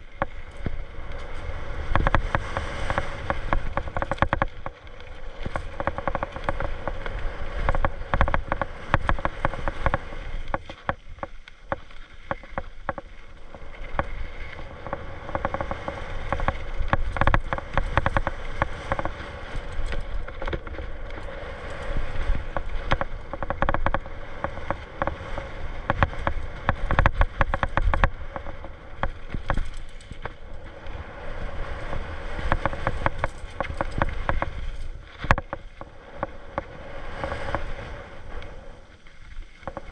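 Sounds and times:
bike frame and chain rattling: 0:00.0 - 0:11.3, 0:13.9 - 0:25.2, 0:25.8 - 0:30.6, 0:31.3 - 0:35.9
bike tyres rolling over rocks: 0:00.0 - 0:39.9.

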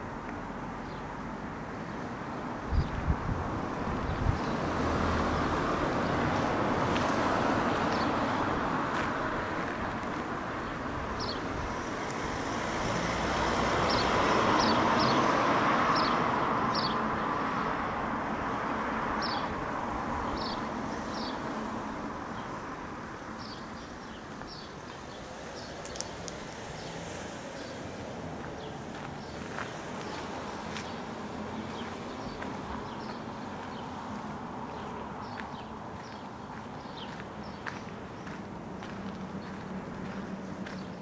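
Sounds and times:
road traffic passing: 0:00.0 - 0:41.0
small birds chirping: 0:10.6 - 0:12.2, 0:15.9 - 0:17.0, 0:20.2 - 0:21.5, 0:23.2 - 0:41.0.

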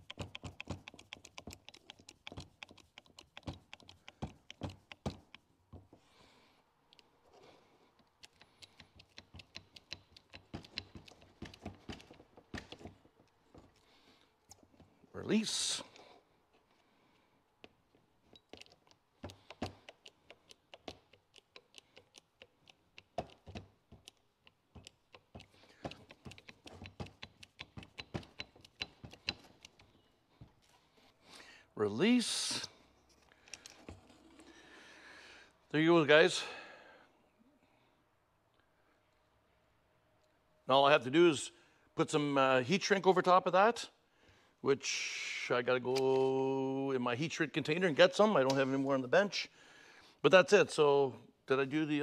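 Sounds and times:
hydraulic crimping tool clicking: 0:08.0 - 0:12.9, 0:18.3 - 0:30.0.

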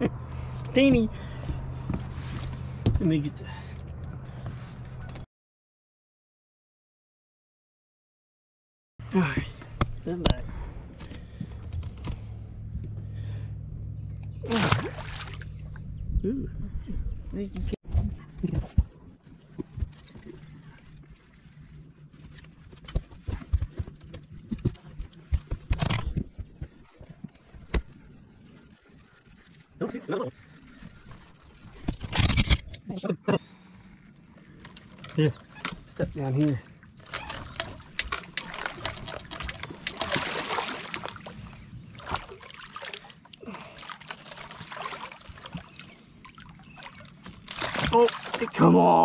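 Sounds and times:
fish splashing in water: 0:14.4 - 0:15.8, 0:37.1 - 0:48.5
water dribbling: 0:14.4 - 0:15.9, 0:37.1 - 0:48.6
rustling scrape: 0:27.0 - 0:32.7.

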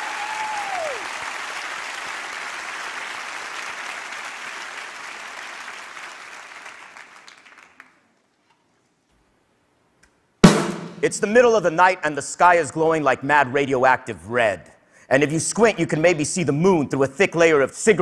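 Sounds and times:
crowd cheer gliding down: 0:00.0 - 0:01.6
audience applauding: 0:00.0 - 0:08.2.

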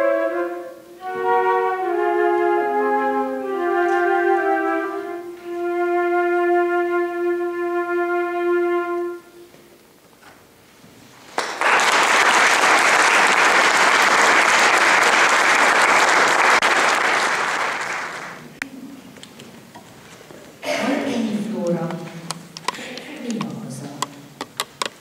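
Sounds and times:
flute piece: 0:00.0 - 0:09.7
audience applauding: 0:11.3 - 0:18.5.

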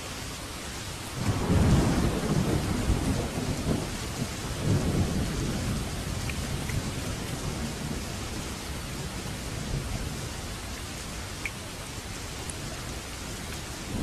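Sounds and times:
steady rain: 0:00.0 - 0:14.0
rolling thunder: 0:01.2 - 0:10.6.

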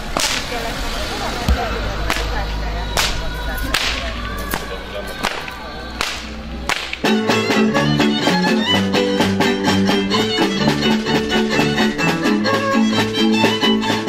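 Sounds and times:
whip cracking: 0:00.1 - 0:00.5, 0:03.0 - 0:07.2.

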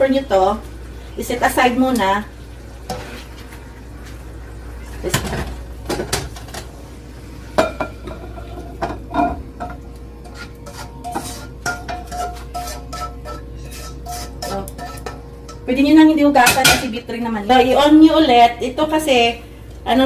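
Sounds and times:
ladle scraping and knocking on wok: 0:07.6 - 0:15.6.

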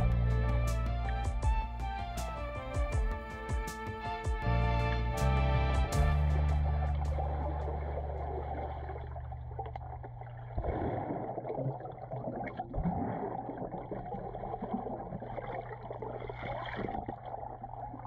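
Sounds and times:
steady low hum: 0:04.5 - 0:12.0
underwater splashing and bubbling: 0:06.9 - 0:18.0.

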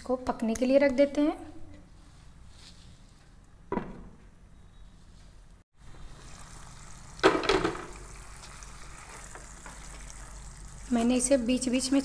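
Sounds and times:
gravy sizzling: 0:05.8 - 0:12.0.

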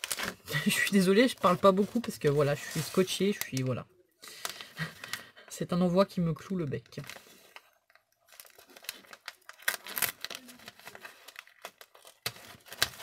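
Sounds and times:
wrapping paper crinkling: 0:00.0 - 0:05.5, 0:06.4 - 0:13.0
small crackles and clicks: 0:06.9 - 0:13.0.

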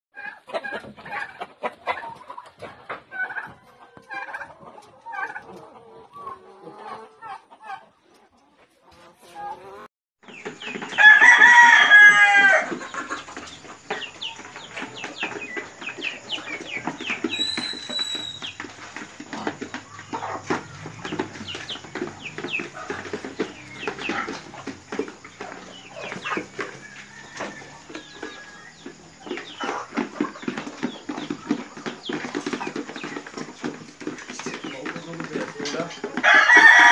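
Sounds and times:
chickens clucking: 0:00.2 - 0:36.9
rooster crowing: 0:10.9 - 0:12.8, 0:26.0 - 0:28.8, 0:36.2 - 0:36.9.

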